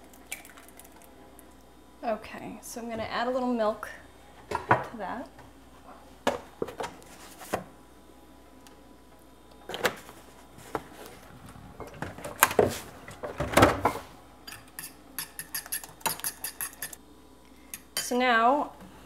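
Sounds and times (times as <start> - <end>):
utensil clinking against bowl: 14.5 - 17.0.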